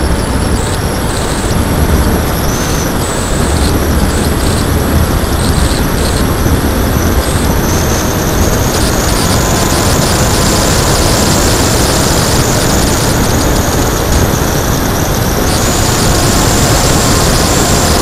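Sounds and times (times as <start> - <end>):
electric motor and propeller whine: 0.0 - 18.0
wind buffeting camera: 0.0 - 18.0.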